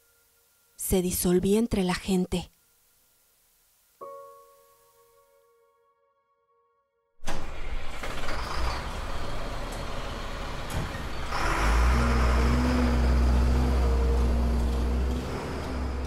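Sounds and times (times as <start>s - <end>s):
city street traffic: 7.3s - 16.0s
heavy vehicle engine humming: 7.3s - 16.0s.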